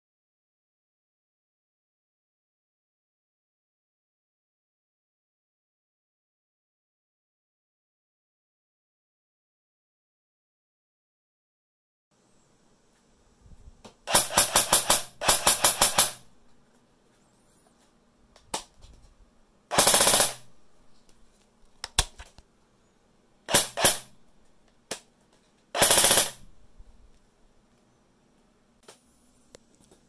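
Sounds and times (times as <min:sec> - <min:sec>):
airsoft gun full-auto bursts: 0:14.1 - 0:16.3, 0:19.7 - 0:20.6, 0:23.5 - 0:24.2, 0:25.8 - 0:26.6.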